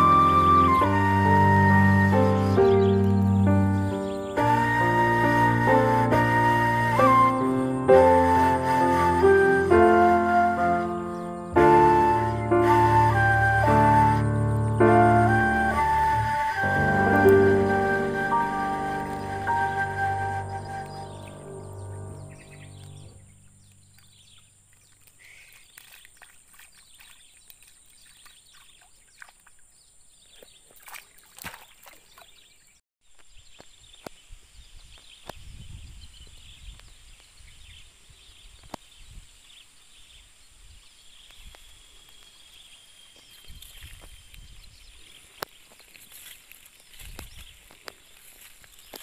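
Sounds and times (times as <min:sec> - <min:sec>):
low rumble: 0:16.5 - 0:24.1.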